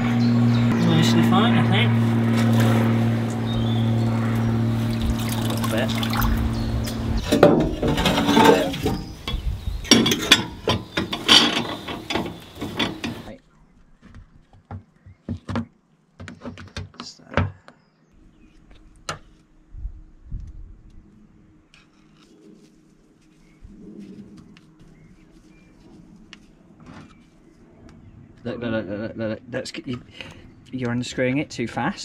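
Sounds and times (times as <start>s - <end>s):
steady hum: 0.0s - 13.4s.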